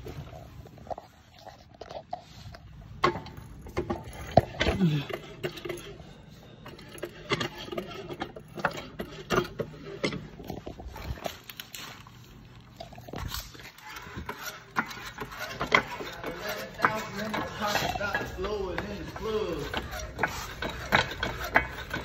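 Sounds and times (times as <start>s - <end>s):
metal knocks and clanks: 13.8s - 22.0s.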